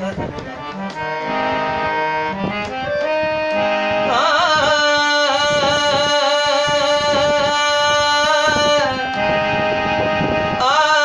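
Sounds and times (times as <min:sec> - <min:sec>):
man singing: 0:00.0 - 0:00.7, 0:04.0 - 0:09.3, 0:10.5 - 0:11.0
harmonium: 0:00.0 - 0:11.0.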